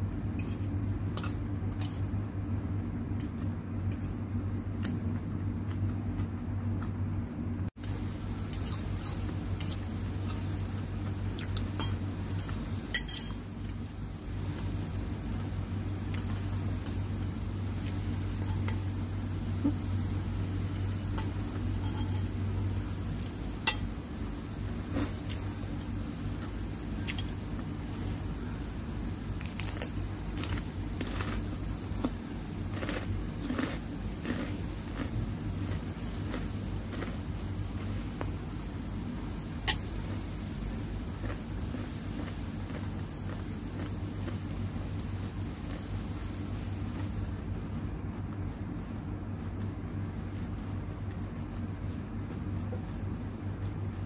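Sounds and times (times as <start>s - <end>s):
steady low hum: 0.0s - 54.0s
cutlery clinking on a plate: 11.8s - 13.4s, 21.2s - 22.3s.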